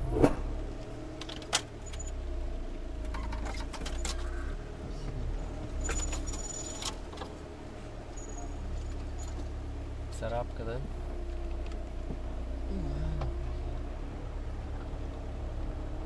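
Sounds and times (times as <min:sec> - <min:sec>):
car engine and road rumble: 0:00.0 - 0:16.0
light jangling and rattling clicks: 0:01.2 - 0:02.2, 0:03.1 - 0:04.3, 0:05.8 - 0:07.4, 0:08.2 - 0:09.6.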